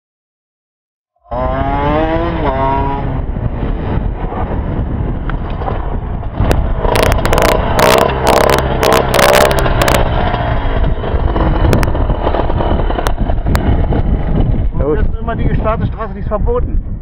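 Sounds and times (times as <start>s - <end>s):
dirt bike engines revving: 1.3s - 3.7s, 6.3s - 15.6s
wind noise on microphone: 1.3s - 17.0s.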